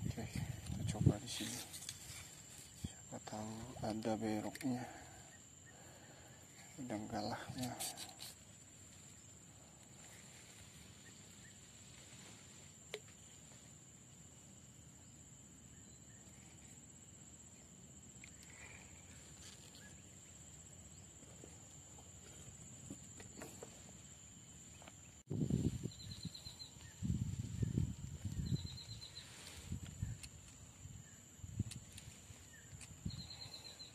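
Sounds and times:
high-pitched insect drone: 0:14.6 - 0:33.9.

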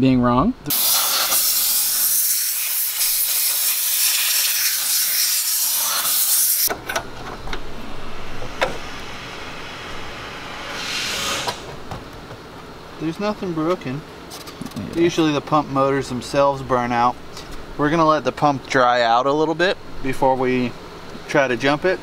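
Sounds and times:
loud steady hiss: 0:00.6 - 0:06.8, 0:07.5 - 0:14.3.

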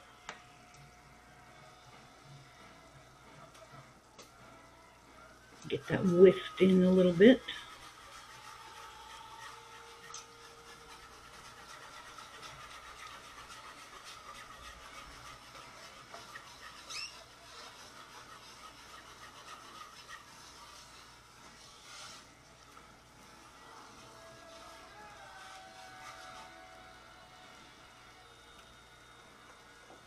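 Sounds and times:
whisk scraping in metal pot: 0:05.7 - 0:22.4, 0:23.2 - 0:27.5.

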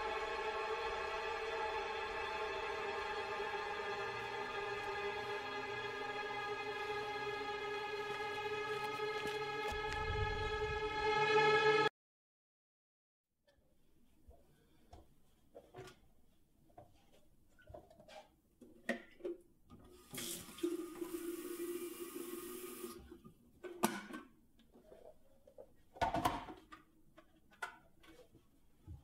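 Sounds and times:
water tap running into sink: 0:19.9 - 0:23.1.

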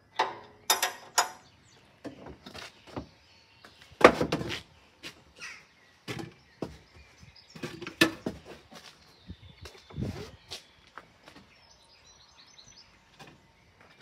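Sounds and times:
metal clanks and knocks: 0:00.2 - 0:01.5.

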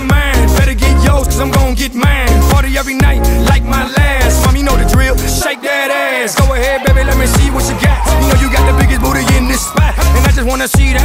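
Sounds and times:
hip hop music with heavy bass: 0:00.0 - 0:11.0
gliding pitched vocal or synth: 0:05.1 - 0:10.2.

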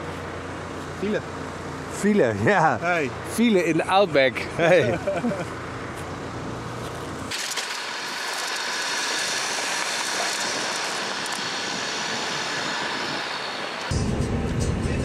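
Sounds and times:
low engine rumble: 0:00.0 - 0:07.3, 0:10.4 - 0:15.0
tyres rushing on gravel: 0:07.0 - 0:13.9
wind noise: 0:08.6 - 0:14.4.

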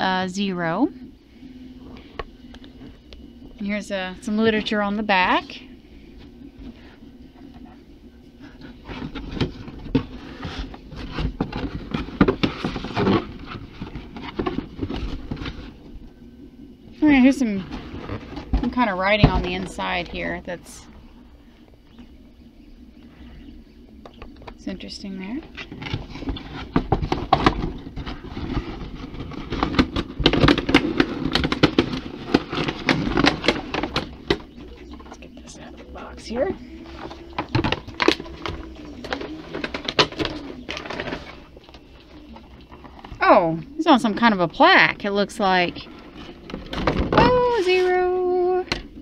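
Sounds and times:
cardboard box scraping and knocking: 0:08.7 - 0:15.8, 0:25.5 - 0:34.6.

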